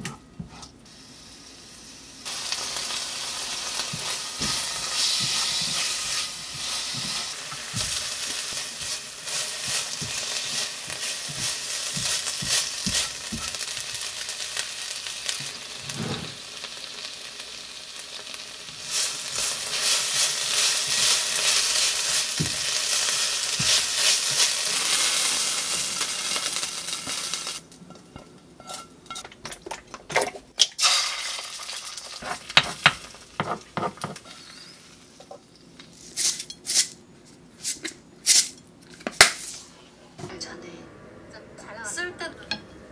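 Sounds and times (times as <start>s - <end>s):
fried rice sizzling in a pan: 0.9s - 27.6s, 30.8s - 35.2s
spatula stirring and scraping: 3.9s - 13.9s, 32.2s - 34.6s.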